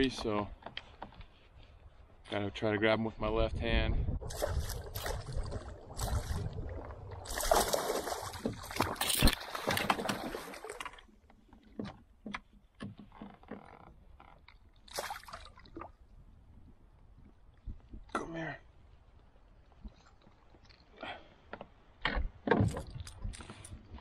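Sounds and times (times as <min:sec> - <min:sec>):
water splashing by a canoe: 0:04.1 - 0:24.0.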